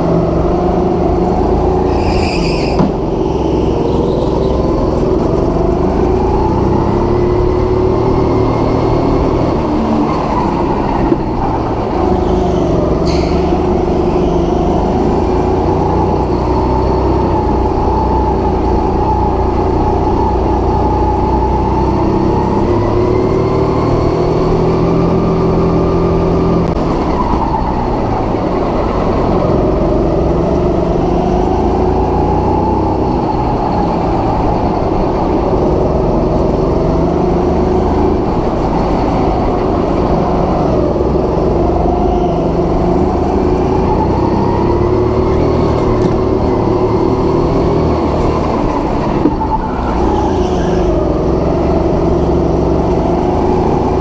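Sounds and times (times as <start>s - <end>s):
go-kart engine revving: 0.0s - 54.0s
brief high squeak: 1.8s - 4.5s, 13.0s - 14.6s.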